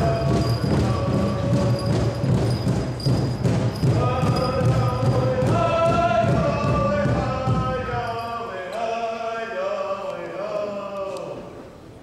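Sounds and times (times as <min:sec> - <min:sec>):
large drum beats: 0:00.0 - 0:08.3.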